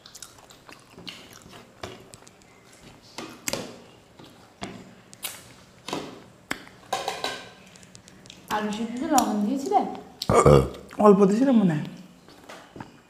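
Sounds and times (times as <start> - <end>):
mouth smacking and chewing: 0.0 - 2.5.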